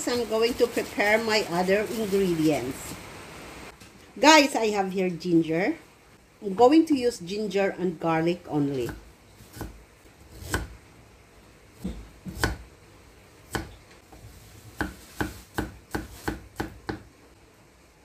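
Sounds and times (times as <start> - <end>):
knife cutting on wooden board: 8.8 - 10.7, 13.5 - 17.0.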